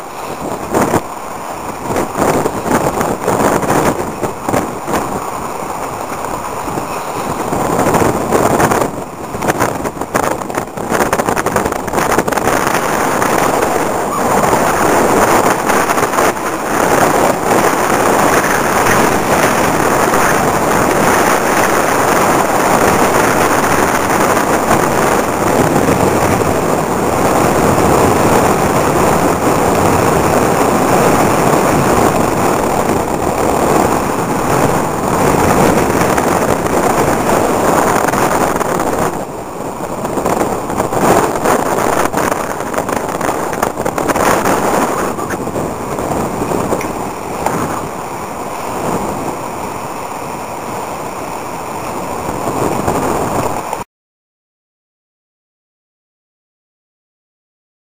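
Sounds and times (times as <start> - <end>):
wind howling across microphone: 0.0 - 53.8.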